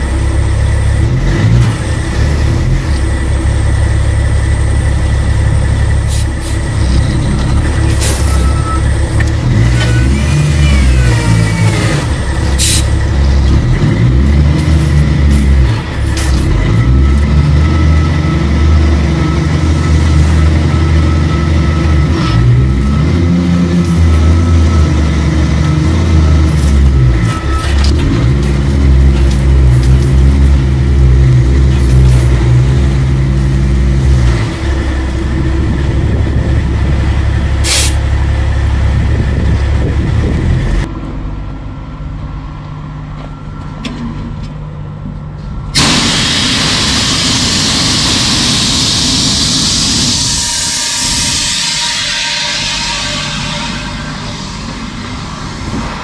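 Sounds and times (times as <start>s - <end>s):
diesel truck engine pulling hard: 0.0s - 41.4s, 45.7s - 56.0s
sharp hiss of air: 12.6s - 12.9s, 37.6s - 38.0s, 45.8s - 56.0s.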